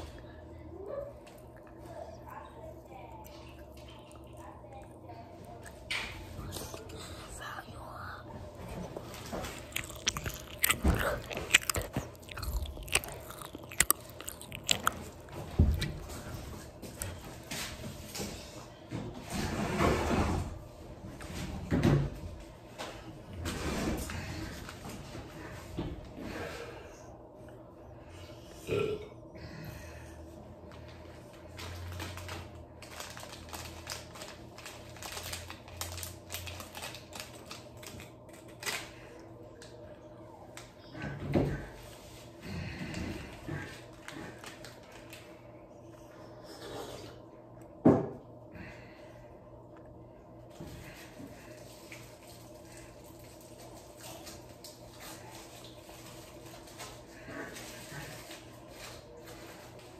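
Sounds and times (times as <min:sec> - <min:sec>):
child chewing crunchy candy: 0:01.2 - 0:17.5, 0:30.7 - 0:39.8, 0:41.5 - 0:47.2, 0:50.6 - 0:59.9
plastic candy wrapper crinkling: 0:09.1 - 0:16.1, 0:31.6 - 0:38.9.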